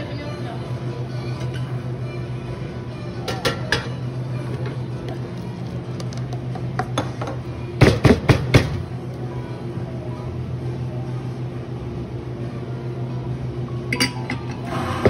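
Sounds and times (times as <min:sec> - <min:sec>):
cups clinking: 0:13.9 - 0:15.0
espresso machine humming: 0:14.6 - 0:15.0.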